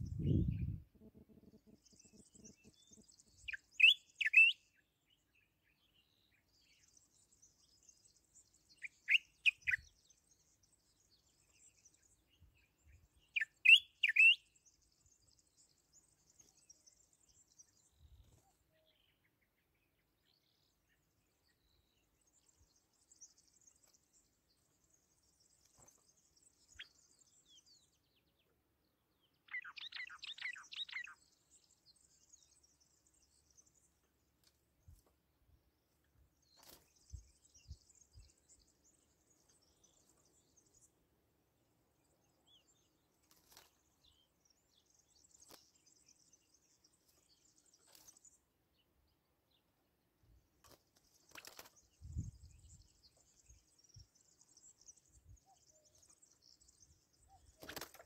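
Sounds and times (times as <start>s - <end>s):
songbird singing: 0.0s - 58.0s
faint high twittering: 50.6s - 58.0s.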